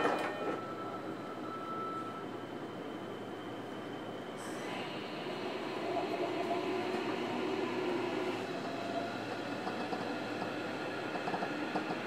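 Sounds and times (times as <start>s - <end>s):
wheels rumbling on rail: 0.0s - 12.0s
electric train motor whine: 4.5s - 11.8s.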